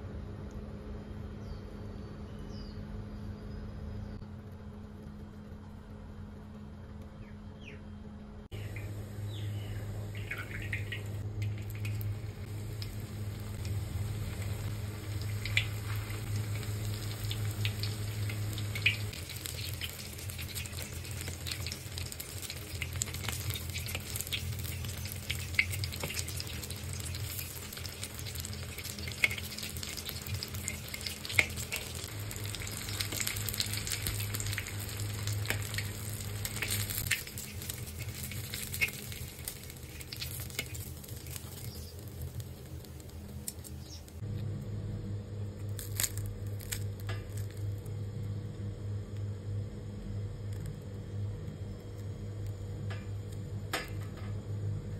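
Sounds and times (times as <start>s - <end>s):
steady low hum: 0.0s - 54.9s
food sizzling in hot oil: 8.6s - 44.2s, 45.7s - 47.9s.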